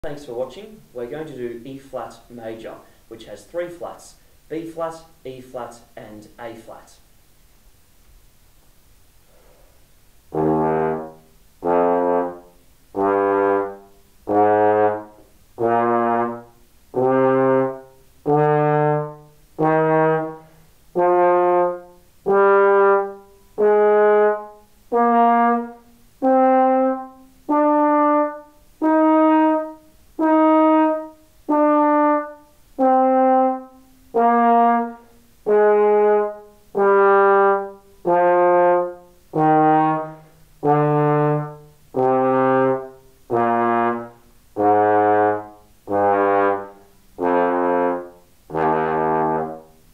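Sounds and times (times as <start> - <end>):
trombone playing held notes: 10.3 - 49.9.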